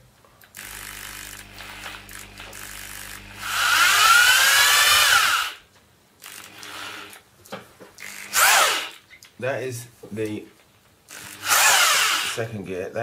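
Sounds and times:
electric drill whining: 0.6s - 5.6s, 6.2s - 7.2s, 8.0s - 9.0s, 11.1s - 12.4s.

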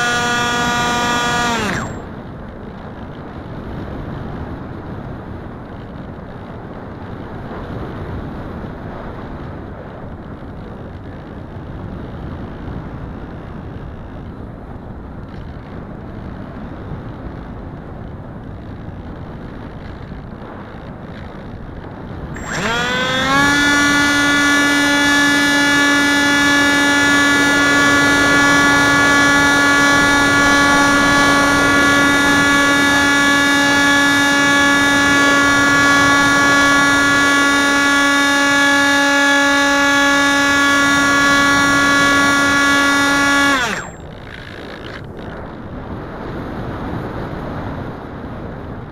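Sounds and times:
electric motor and propeller whine: 0.0s - 2.3s, 22.2s - 47.0s
wind rushing over camera: 0.0s - 48.9s.

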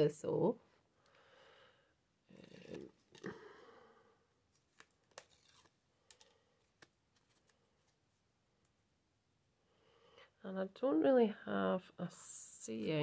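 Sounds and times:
fingers handling card and tape: 4.5s - 8.0s.

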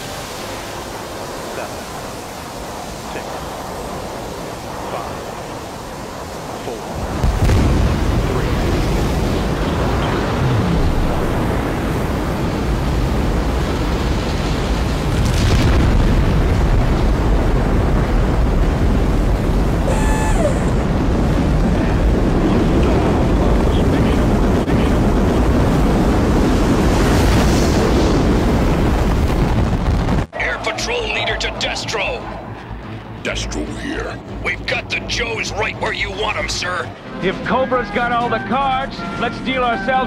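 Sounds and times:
jet engine rumbling rush: 0.0s - 37.1s.

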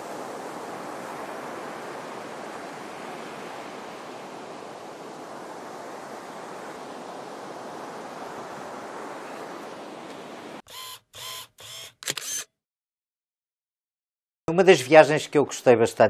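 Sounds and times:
camera shutter clicks: 10.7s - 12.5s.

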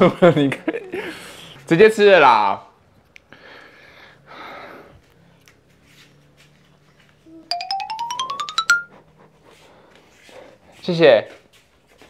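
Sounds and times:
rising bell-like notes: 7.5s - 8.9s.

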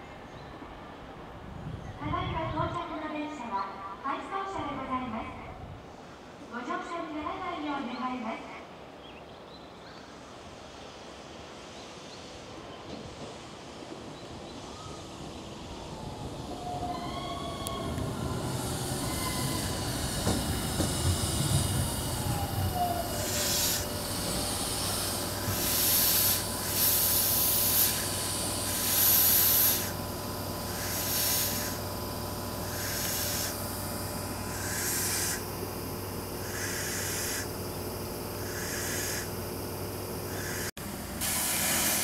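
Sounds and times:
wheels rumbling on rail: 11.5s - 39.1s
train motor whine: 15.6s - 42.0s
air hiss bursts: 17.1s - 37.6s, 38.3s - 39.4s, 40.2s - 42.0s
steady low hum: 17.6s - 42.0s.

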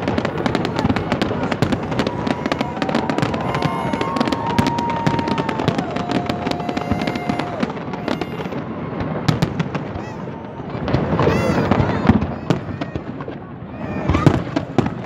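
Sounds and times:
long held tones: 0.0s - 8.6s
fireworks crackling and banging: 0.0s - 15.0s.

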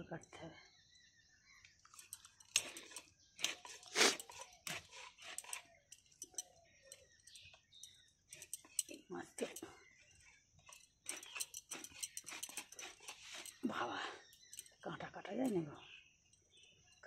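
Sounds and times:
blade crunching through fish scales: 1.9s - 6.4s.

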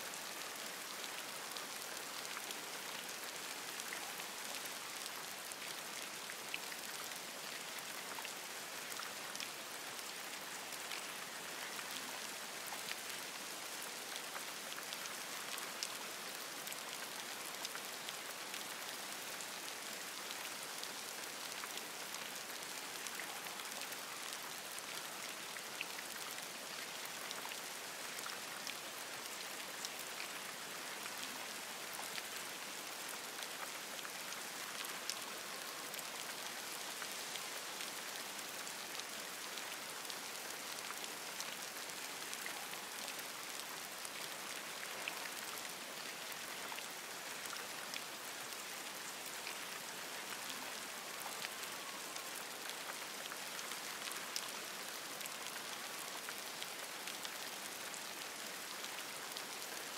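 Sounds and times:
rain falling on leaves: 0.0s - 59.9s.

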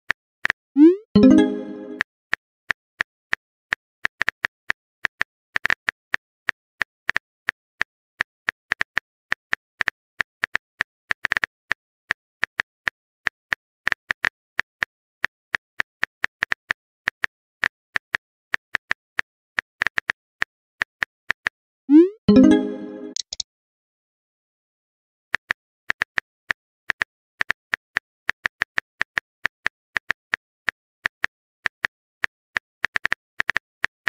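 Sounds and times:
phone keyboard tapping clicks: 23.1s - 23.4s.

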